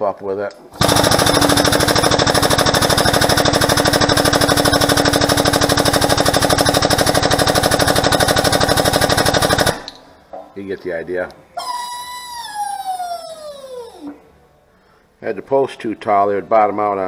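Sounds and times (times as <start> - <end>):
hydraulic pump pulsing: 0.8 - 9.9.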